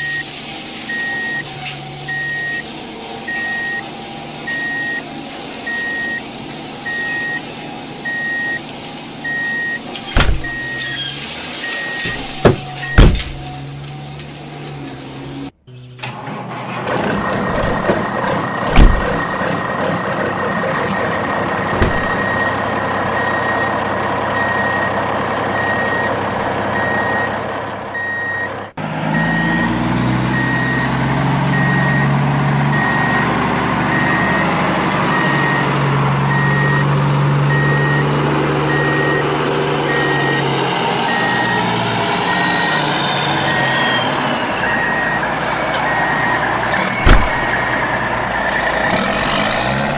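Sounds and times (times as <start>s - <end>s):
diesel engine running: 0.0s - 49.9s
engine hum with whine: 0.0s - 49.9s
reversing alarm beeping: 0.9s - 5.0s, 5.6s - 8.6s, 9.2s - 10.9s, 21.7s - 27.4s, 28.0s - 34.5s, 35.1s - 49.9s.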